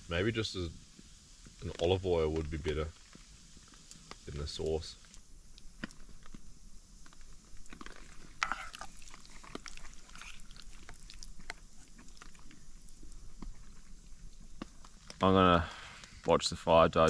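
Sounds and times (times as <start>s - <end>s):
person chewing: 5.0s - 15.2s.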